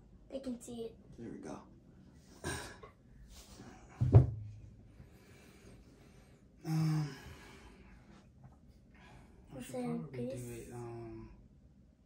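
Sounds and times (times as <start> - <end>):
steady hum-like tone: 0.0 - 12.0
loud low thump: 4.0 - 4.7.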